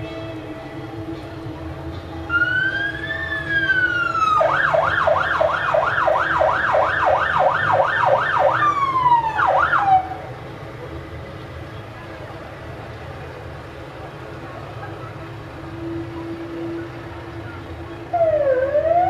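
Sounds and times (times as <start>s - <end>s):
fire engine siren wail and yelp: 2.2s - 10.5s, 14.5s - 19.0s.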